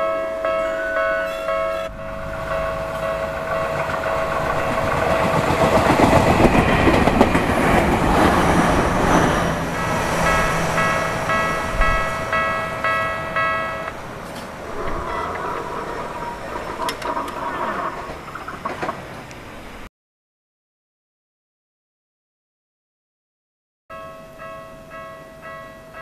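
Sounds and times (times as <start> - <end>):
level crossing warning bell: 0.0 - 18.1, 23.9 - 26.0
train wheels clacking: 1.3 - 19.4.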